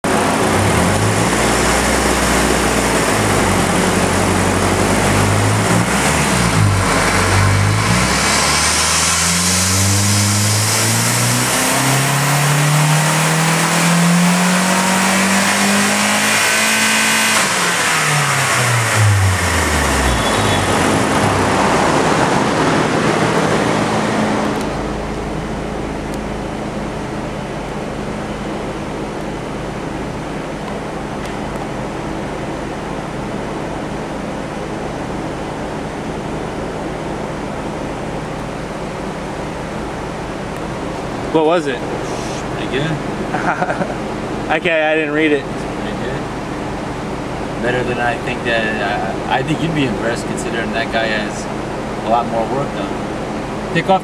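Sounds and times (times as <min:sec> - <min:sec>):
car engine revving: 0:00.0 - 0:26.8
thin rising whine: 0:00.0 - 0:54.0.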